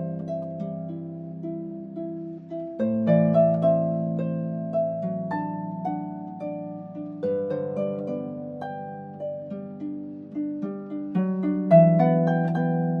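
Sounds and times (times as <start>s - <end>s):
plucked harp-like notes: 0.0s - 13.0s.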